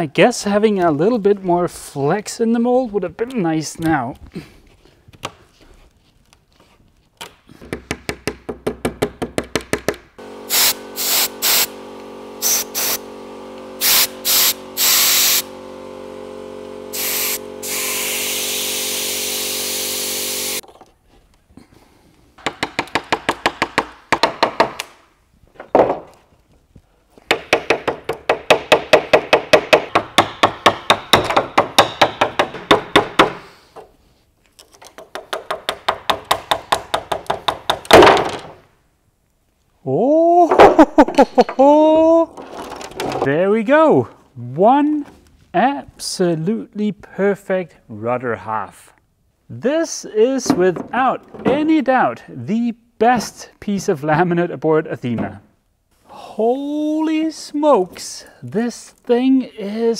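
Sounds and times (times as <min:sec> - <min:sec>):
wooden block hammering wedges: 0:07.6 - 0:10.1, 0:22.4 - 0:25.0, 0:27.2 - 0:33.4, 0:35.0 - 0:38.5
steady machine hum: 0:10.2 - 0:20.6.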